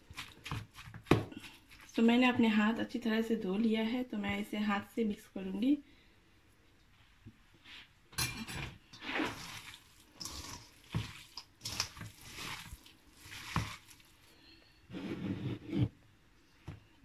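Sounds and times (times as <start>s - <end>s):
wet squishing of mixed meat: 9.1s - 14.3s.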